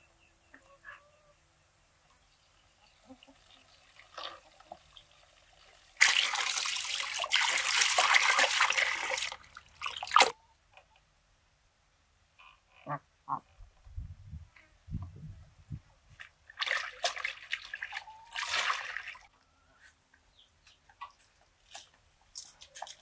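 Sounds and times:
water pouring and splashing: 0:03.2 - 0:10.4, 0:16.1 - 0:19.3.

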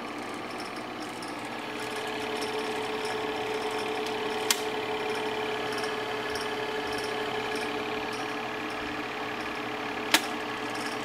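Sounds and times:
film projector whirring and ticking: 0:00.0 - 0:11.0
sharp click: 0:10.1 - 0:10.4.

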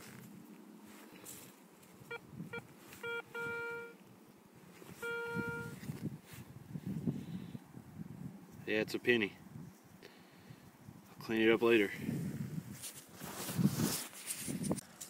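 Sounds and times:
metal detector beeps and tones: 0:02.0 - 0:04.0, 0:04.9 - 0:05.8.

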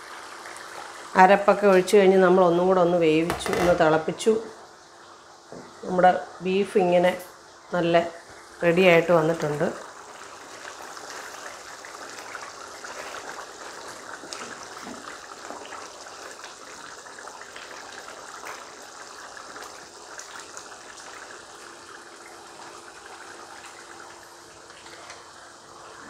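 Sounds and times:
curry bubbling: 0:07.6 - 0:26.0.

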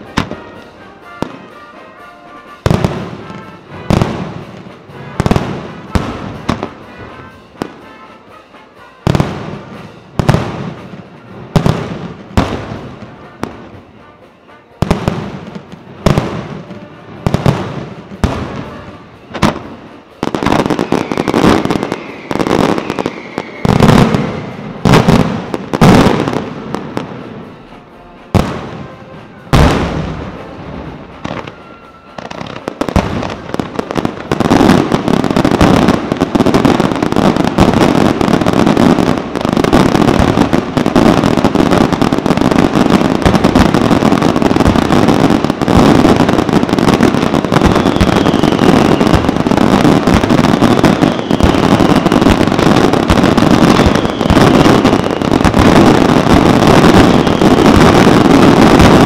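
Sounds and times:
firework crackle: 0:00.0 - 0:59.0
falling firework whistle: 0:14.8 - 0:59.0.

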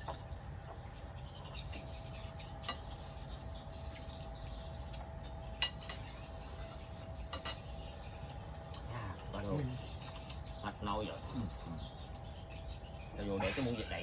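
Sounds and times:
utensils clinking against bowls: 0:05.0 - 0:07.8.

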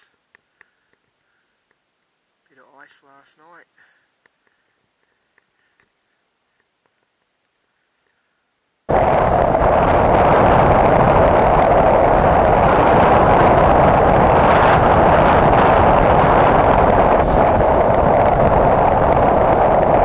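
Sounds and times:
wind rush on microphone: 0:08.9 - 0:20.0.

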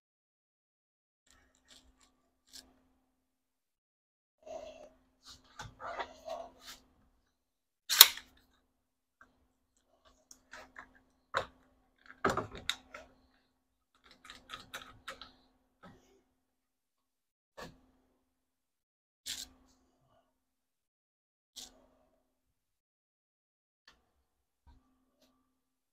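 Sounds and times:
tools and wood clicking and knocking: 0:10.3 - 0:13.2, 0:14.0 - 0:15.4.

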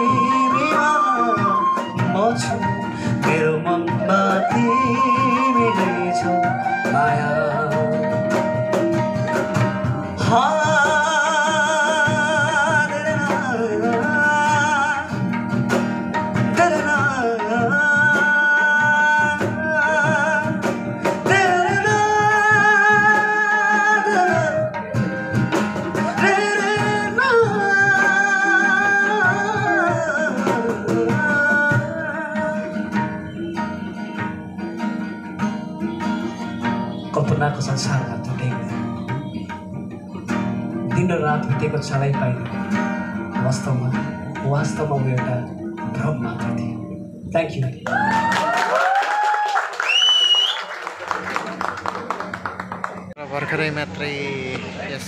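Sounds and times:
man singing with vibrato: 0:00.0 - 0:15.5, 0:16.1 - 0:34.8, 0:40.7 - 0:47.3
tabla: 0:00.0 - 0:34.3, 0:35.4 - 0:43.7
acoustic guitar: 0:00.0 - 0:55.0.

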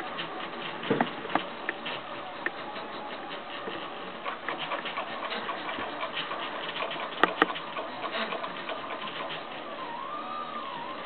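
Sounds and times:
stepper motors buzzing and ticking: 0:03.7 - 0:11.0.

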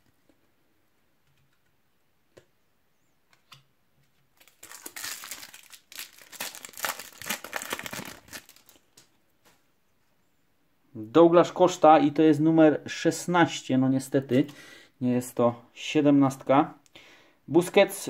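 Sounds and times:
foil wrapper crinkling and tearing: 0:04.4 - 0:09.0.

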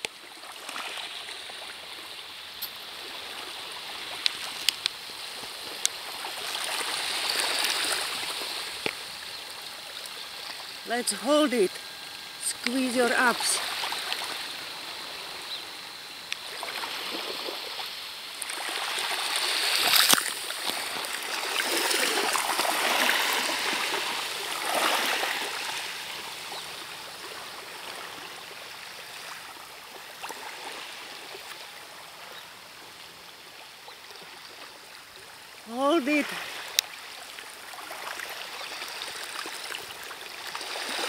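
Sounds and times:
waves washing onto pebble beach: 0:02.8 - 0:15.4, 0:16.4 - 0:31.8.

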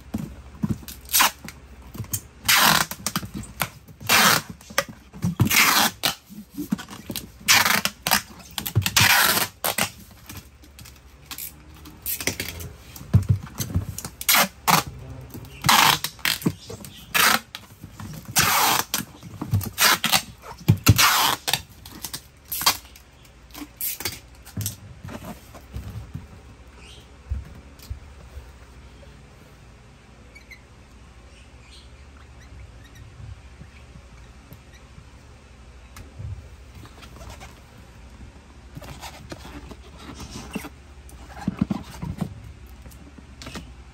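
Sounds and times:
packing tape ripping off roll: 0:00.8 - 0:12.7, 0:13.5 - 0:24.8
cardboard box rubbing and knocking: 0:38.7 - 0:42.4.

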